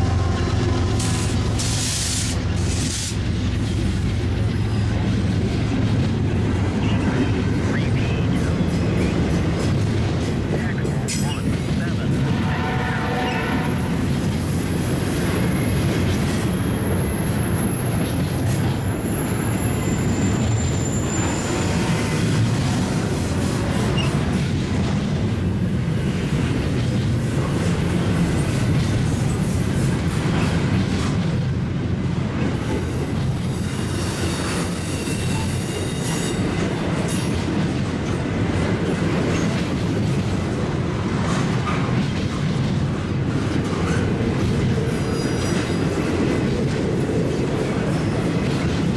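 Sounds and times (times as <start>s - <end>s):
train wheels rumbling on rail: 0.0s - 48.9s
high wheel squeal: 18.8s - 22.3s, 31.3s - 36.7s.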